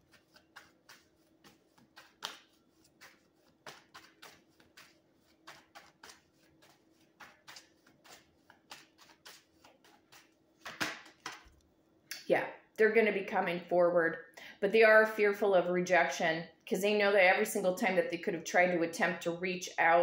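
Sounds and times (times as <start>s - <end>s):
cards being shuffled: 0.0s - 11.6s.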